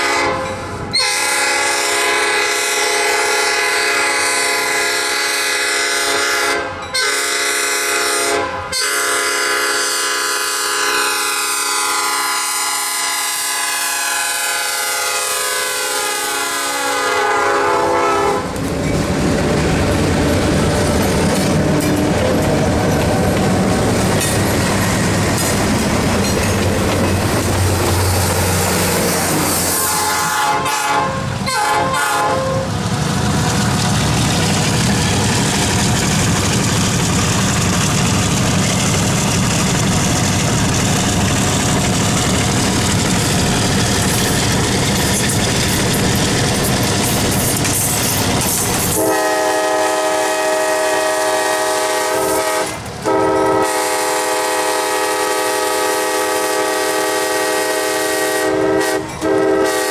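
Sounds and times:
locomotive air horn: 0:00.0 - 0:18.6, 0:28.1 - 0:32.8, 0:48.9 - 0:59.9
diesel locomotive rumble: 0:00.0 - 0:59.9
train wheels clattering on rails: 0:18.4 - 0:29.9, 0:32.9 - 0:49.3.

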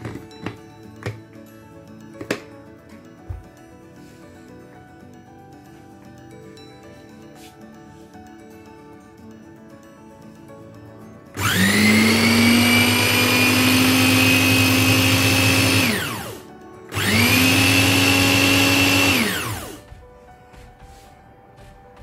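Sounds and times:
mixer grinder motor whine: 0:11.4 - 0:19.9.

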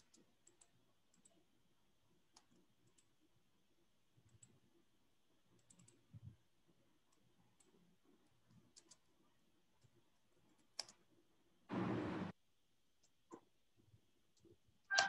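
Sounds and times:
computer mouse and keyboard clicks: 0:00.0 - 0:01.5, 0:02.3 - 0:03.2, 0:04.2 - 0:04.6, 0:05.6 - 0:06.4, 0:07.1 - 0:09.2, 0:09.8 - 0:11.1.

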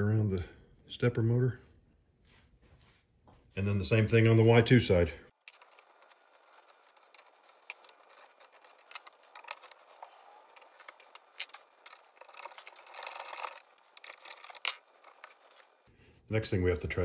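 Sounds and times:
hand tools clicking and scraping: 0:05.4 - 0:15.9
scraping rustle: 0:05.4 - 0:15.9.

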